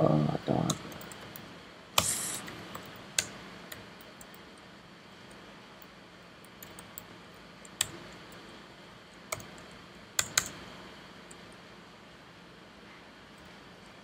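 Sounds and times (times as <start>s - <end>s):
faint steady hum: 0.0s - 14.0s
keystrokes on computer keyboard: 5.2s - 8.5s, 9.3s - 10.6s.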